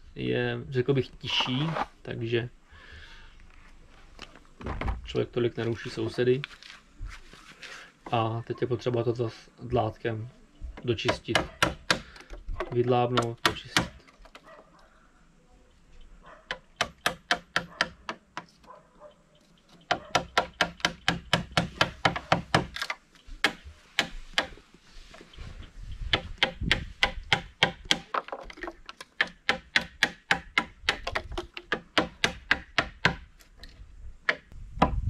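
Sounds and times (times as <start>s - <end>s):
hammer striking wood chisel: 11.0s - 14.0s, 16.5s - 18.5s, 19.9s - 22.8s, 23.4s - 24.6s, 26.1s - 33.3s, 34.2s - 35.0s.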